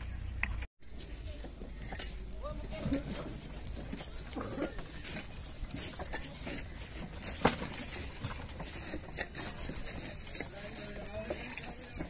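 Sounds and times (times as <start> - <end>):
knocks and clinks: 0.9 - 12.0.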